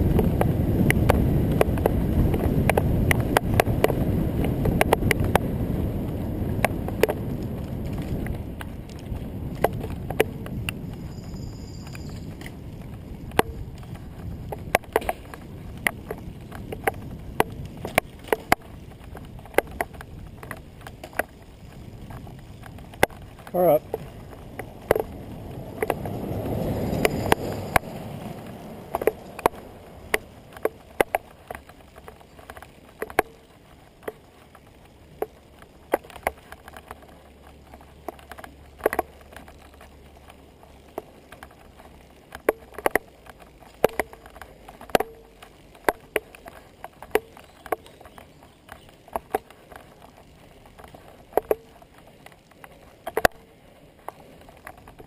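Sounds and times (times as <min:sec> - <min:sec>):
bicycle rolling over rough pavement: 0:00.0 - 0:55.0
bike rattling clicks and knocks: 0:00.0 - 0:55.0
pickup truck passing: 0:24.7 - 0:30.5.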